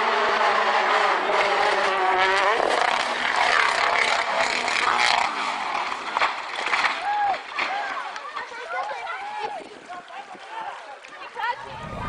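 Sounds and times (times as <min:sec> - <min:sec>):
rally car engine at high revs: 0:00.0 - 0:06.6.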